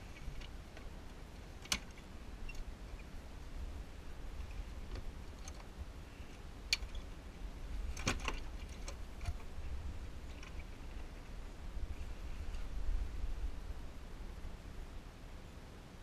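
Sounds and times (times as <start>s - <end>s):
low steady rumble: 0.0s - 16.0s
clicks of sailboat deck hardware: 8.0s - 9.5s.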